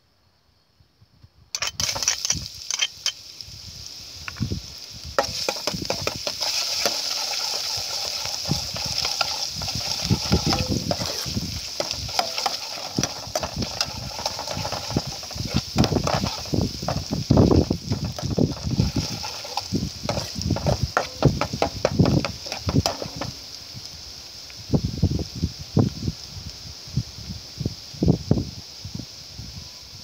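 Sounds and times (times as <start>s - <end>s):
garlic sizzling in oil: 1.6s - 30.0s
metal spoon scraping a pot: 5.2s - 23.3s.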